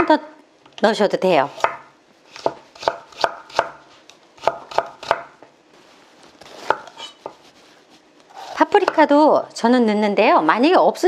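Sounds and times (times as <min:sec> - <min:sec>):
knife cutting on cutting board: 0:01.6 - 0:03.7, 0:06.4 - 0:09.0.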